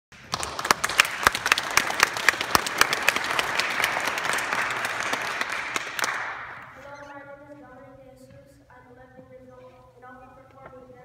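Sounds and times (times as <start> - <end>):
audience applauding: 0.2 - 6.7
nearby person clapping sharply: 0.2 - 6.7.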